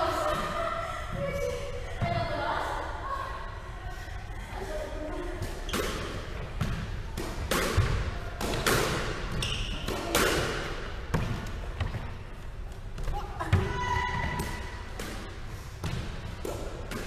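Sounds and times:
squash ball smacks: 5.7s - 12.0s, 14.9s - 17.0s.

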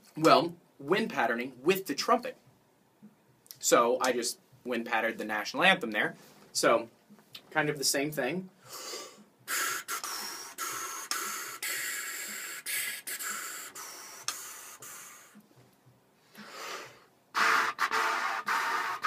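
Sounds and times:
quick breath: 8.6s - 15.4s, 16.2s - 19.0s
hissing puffs of blown air: 8.6s - 15.5s, 16.3s - 19.0s
air rushing into trumpet: 16.4s - 19.0s.

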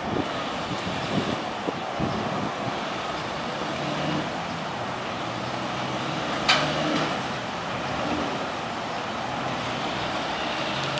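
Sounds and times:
truck and car engines: 0.0s - 10.9s.

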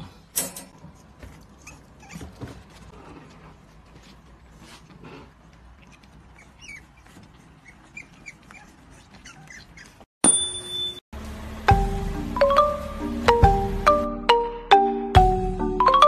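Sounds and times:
puppies squeaking and whining: 1.4s - 2.8s, 5.8s - 10.1s
music with mallet-like tune: 11.7s - 16.0s.

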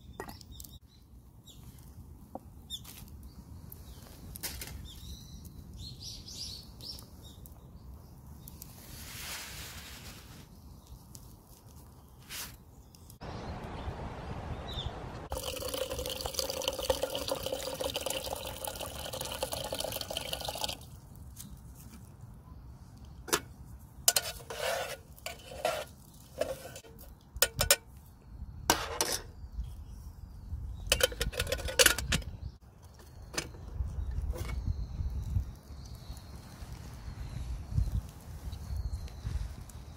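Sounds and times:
rice swished by hand in pot: 8.8s - 10.5s, 12.2s - 12.6s
water pouring into metal pot: 15.3s - 20.9s
clinks against metal pot: 26.4s - 27.9s, 30.9s - 32.3s.

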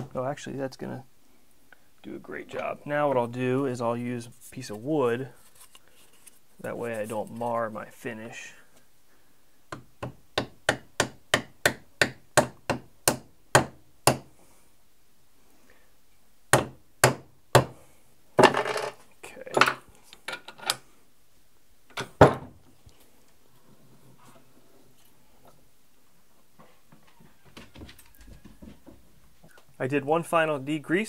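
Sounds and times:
hammer tapping on wooden block: 9.7s - 14.3s
knocking and rattling: 18.4s - 19.0s.

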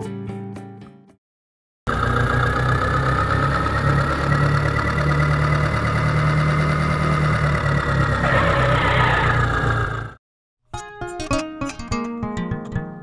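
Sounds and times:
tractor engine running: 1.9s - 10.2s.

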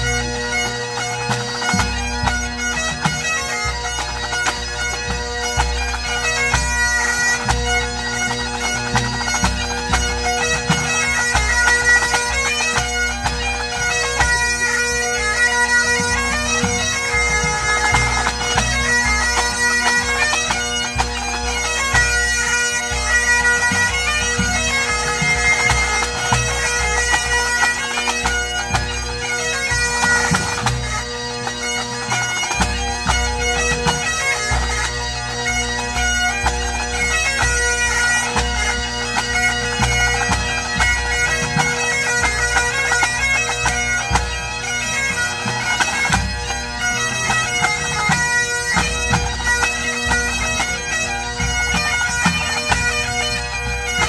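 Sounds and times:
bagpipes playing melody over drones: 0.0s - 54.0s.

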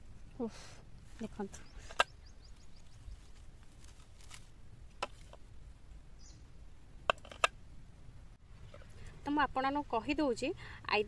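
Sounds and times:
low steady rumble: 0.0s - 11.0s
high bird chirp: 1.5s - 3.2s
dry leaves crackling: 2.5s - 5.4s.

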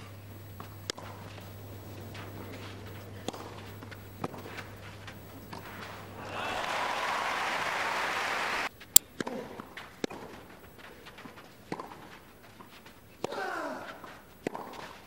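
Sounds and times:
crowd applause: 1.8s - 8.7s.

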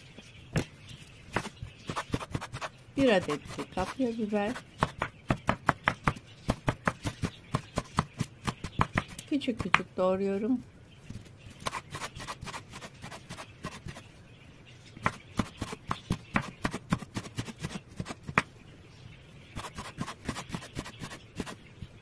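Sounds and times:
knife chopping on wooden board: 1.3s - 4.0s, 4.8s - 9.9s, 15.0s - 18.5s.

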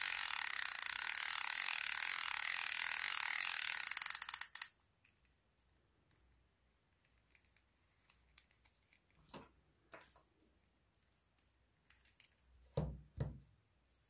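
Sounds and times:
fishing reel clicks and rattles: 0.0s - 4.8s.

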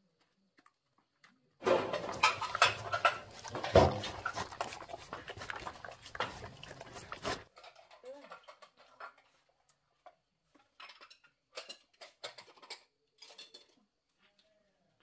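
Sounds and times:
dog chewing and mouth clicks: 1.8s - 7.5s.

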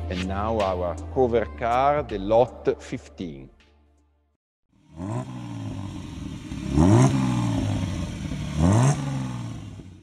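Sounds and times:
car engine revving and idling: 4.8s - 10.0s.

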